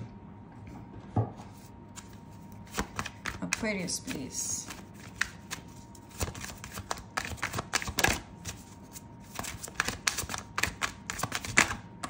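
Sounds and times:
cards being shuffled: 0:01.5 - 0:11.8.

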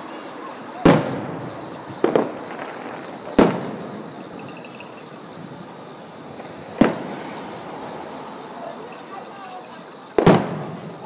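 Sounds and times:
fireworks bursting with booms: 0:00.8 - 0:07.9, 0:10.0 - 0:11.0.

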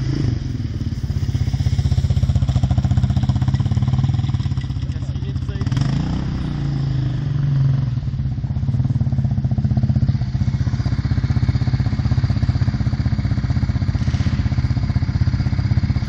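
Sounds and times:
vehicle engine running at low speed: 0:00.0 - 0:16.0.

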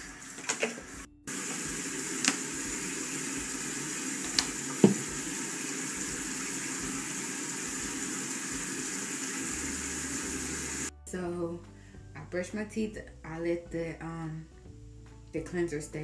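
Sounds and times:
sink tap running: 0:00.0 - 0:10.9.

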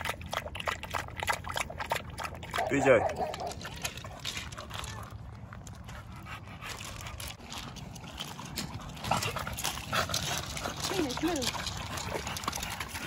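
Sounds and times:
dog panting: 0:00.0 - 0:13.0
paws crunching on gravel: 0:02.6 - 0:13.0.

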